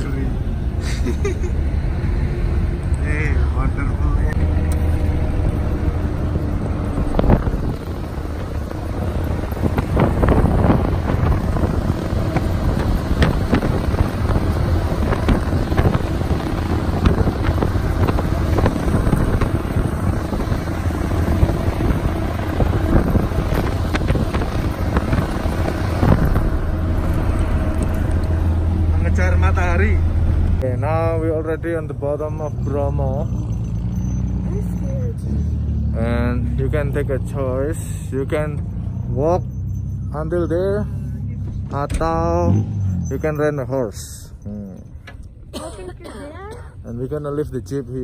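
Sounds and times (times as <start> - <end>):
low engine rumble: 0.0 - 48.0
wind buffeting microphone: 4.8 - 29.0
vehicle knocks and rattles: 6.1 - 28.6.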